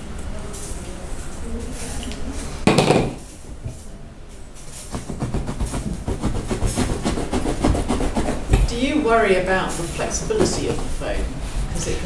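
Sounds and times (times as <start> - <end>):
sharp knock or clatter: 2.7 - 3.2
knife sawing through foam: 4.8 - 9.1.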